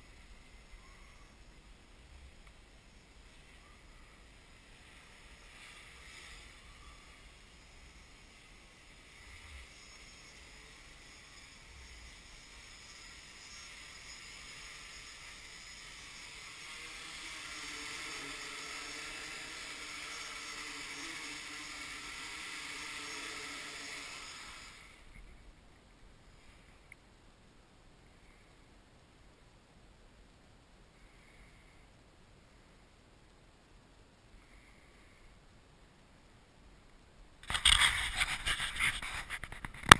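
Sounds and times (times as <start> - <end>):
drone propellers whirring: 11.6 - 24.9.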